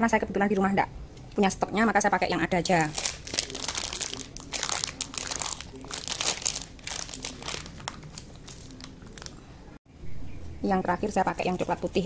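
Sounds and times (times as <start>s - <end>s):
foil packaging crinkling: 2.6s - 9.5s.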